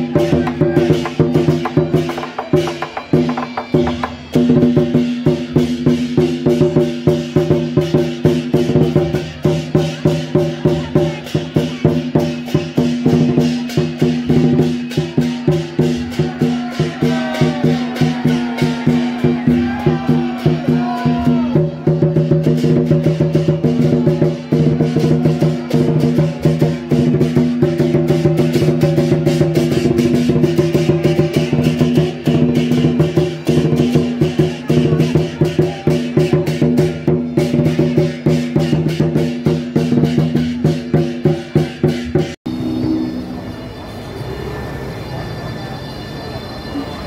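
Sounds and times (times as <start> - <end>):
wood-block percussion strikes: 0.0 - 43.5
gliding high notes: 42.5 - 47.0.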